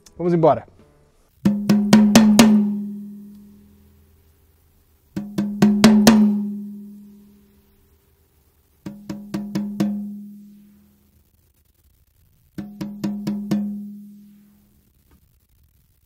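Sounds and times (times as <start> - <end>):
tom drum struck with stick: 1.4 - 3.5, 5.2 - 7.2, 8.8 - 10.6, 12.6 - 14.3.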